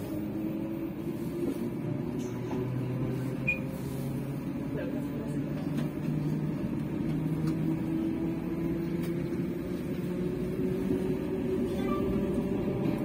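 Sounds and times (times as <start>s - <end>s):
diesel locomotive engine hum: 0.0s - 13.0s.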